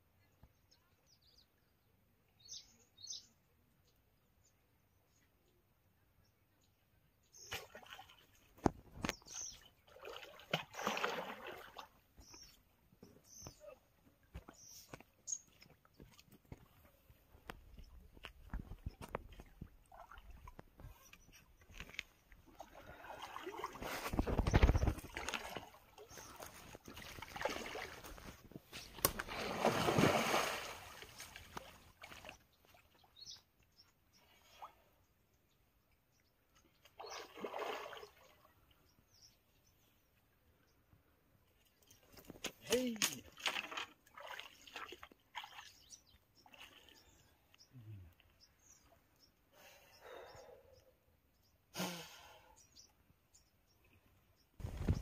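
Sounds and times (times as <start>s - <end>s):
fish splashing in water: 29.0s - 32.4s.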